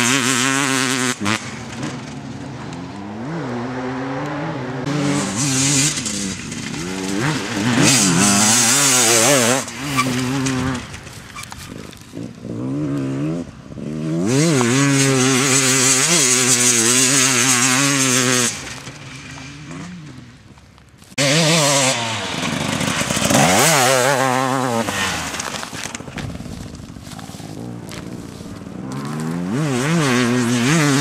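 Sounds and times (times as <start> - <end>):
dirt bike engines revving: 0.0 - 31.0.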